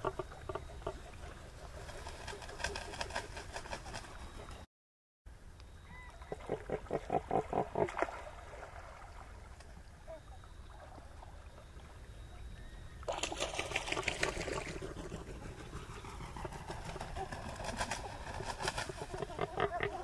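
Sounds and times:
pelicans calling in pulsed notes: 10.0 - 20.0.

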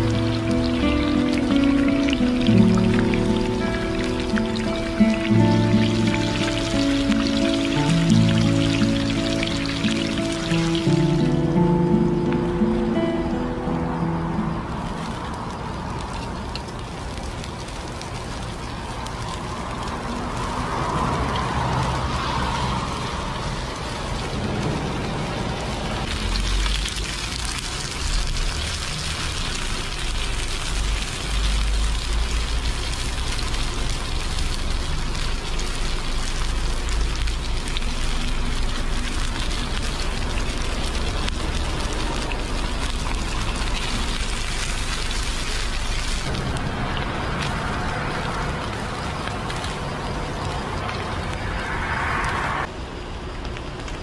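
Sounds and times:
fish sizzling in oil: 0.0 - 54.0
low rumble: 46.2 - 52.8.

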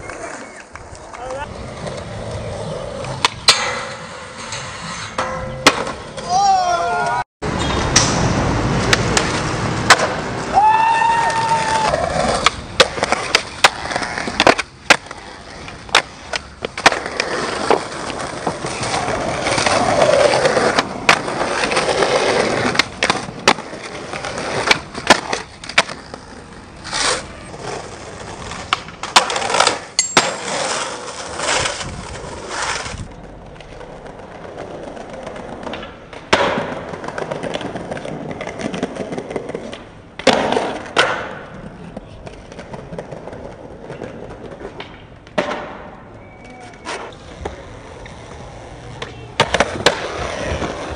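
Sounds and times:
skateboards rolling on concrete: 0.0 - 50.9
skateboard trick pops and landings: 5.2 - 6.3, 7.5 - 10.4, 15.9 - 26.0, 28.5 - 32.1, 33.6 - 41.7, 42.3 - 46.1, 49.0 - 50.9.

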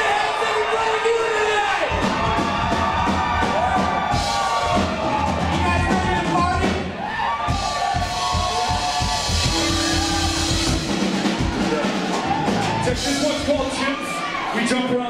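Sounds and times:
drum hits: 1.9 - 13.6
rock band playing: 1.9 - 14.5.

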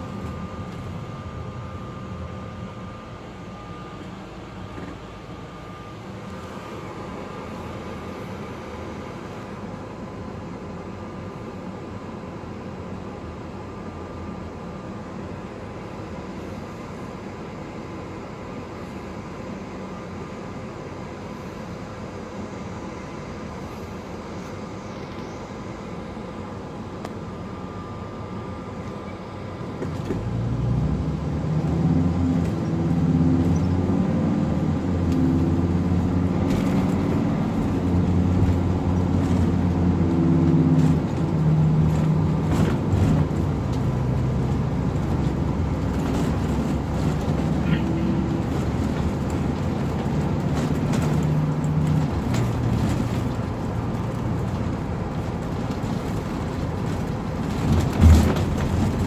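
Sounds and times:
bus engine: 0.0 - 59.0
road noise: 23.4 - 59.0.

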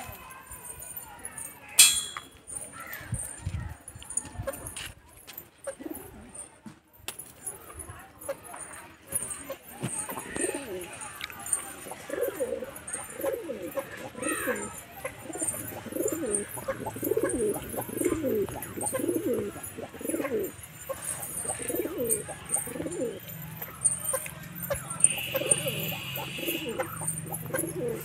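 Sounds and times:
pigeons cooing: 10.1 - 28.0.

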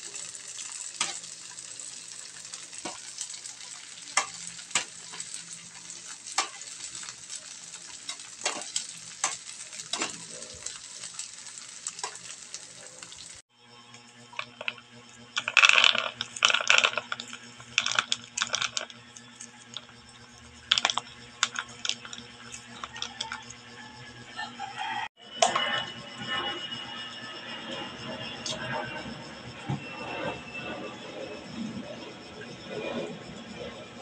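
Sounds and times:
peanuts sizzling in hot oil: 0.0 - 13.5, 14.1 - 25.0
peanuts rattling into plastic bowl: 15.4 - 18.9, 20.7 - 23.3.

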